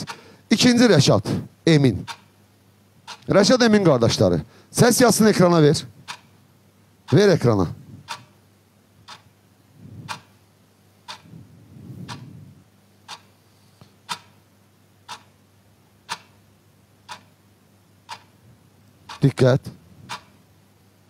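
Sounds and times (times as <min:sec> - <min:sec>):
clock ticking: 0:02.0 - 0:02.3, 0:03.1 - 0:03.3, 0:06.1 - 0:06.3, 0:08.1 - 0:08.3, 0:09.1 - 0:09.3, 0:10.1 - 0:10.3, 0:11.1 - 0:11.3, 0:13.1 - 0:13.3, 0:14.1 - 0:14.4, 0:15.0 - 0:15.3, 0:16.0 - 0:16.4, 0:17.0 - 0:17.3, 0:18.1 - 0:18.3, 0:19.0 - 0:20.4.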